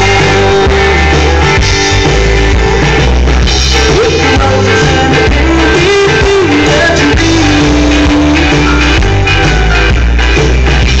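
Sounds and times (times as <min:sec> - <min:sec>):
person singing: 0:00.0 - 0:01.7, 0:03.8 - 0:09.0
live rock band playing: 0:00.0 - 0:11.0.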